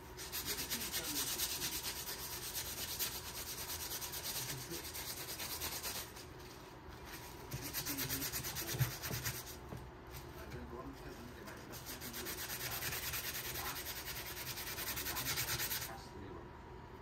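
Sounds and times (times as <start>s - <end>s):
cloth scrubbing: 11.1s - 15.9s.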